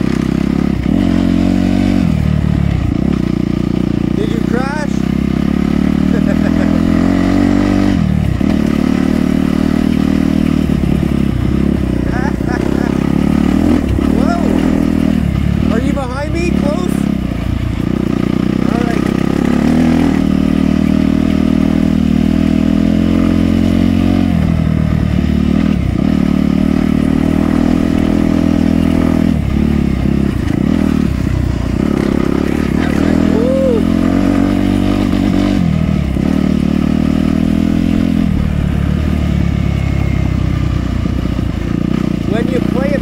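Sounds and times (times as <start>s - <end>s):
dirt bike engine running: 0.0s - 43.0s.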